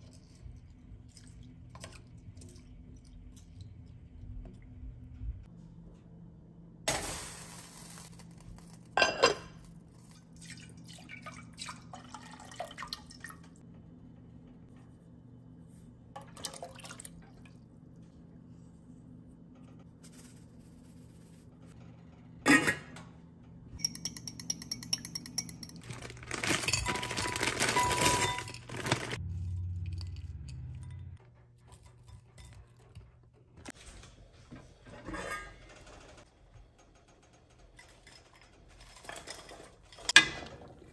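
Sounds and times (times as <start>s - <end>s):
pots and utensils clinking: 8.8s - 9.6s, 23.8s - 29.2s, 37.7s - 40.9s
pepper mill grinding: 23.8s - 30.6s.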